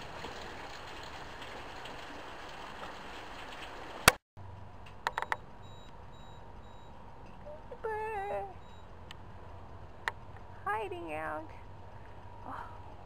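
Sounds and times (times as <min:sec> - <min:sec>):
heavy rain falling: 0:00.0 - 0:04.2.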